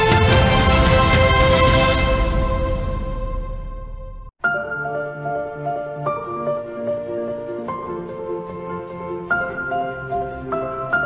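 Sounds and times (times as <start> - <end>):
slow instrumental music: 0.0 - 11.0.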